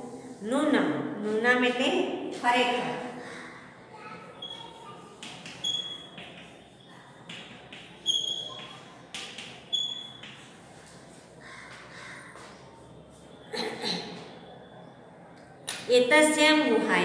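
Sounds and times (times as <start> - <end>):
chalk tapping and scraping on blackboard: 4.5 - 11.1.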